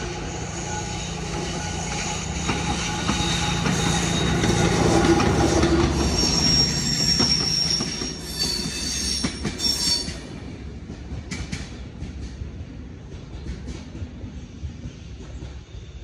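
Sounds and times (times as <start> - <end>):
train wheels squealing: 0.0 - 10.4
train rumble: 0.0 - 16.0.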